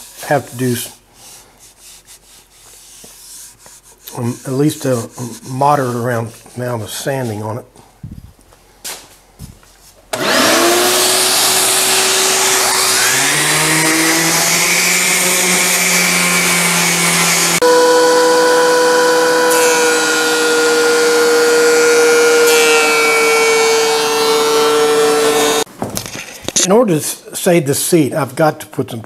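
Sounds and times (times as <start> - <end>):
shop vacuum motor running: 10.1 - 25.7
thickness planer cutting a board: 10.1 - 25.7
random orbit sander running: 10.2 - 25.7.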